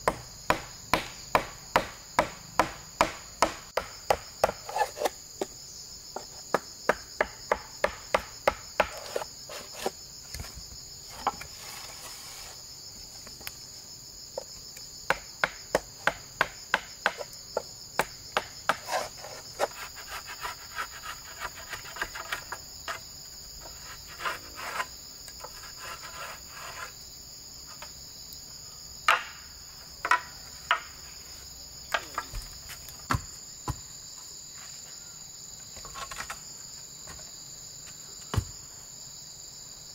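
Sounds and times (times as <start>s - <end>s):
insects shrilling: 9.0s - 13.7s.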